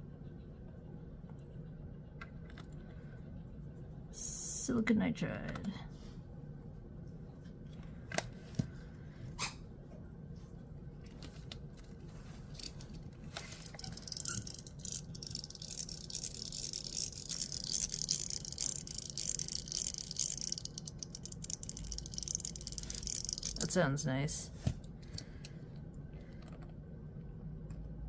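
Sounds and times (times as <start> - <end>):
fast fine clicking rattle: 12.6 - 23.8
fidget toy clicking: 13.4 - 23.8.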